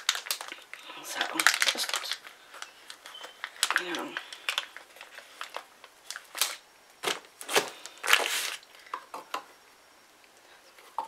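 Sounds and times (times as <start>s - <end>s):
wrapper rustling: 0.0s - 8.7s.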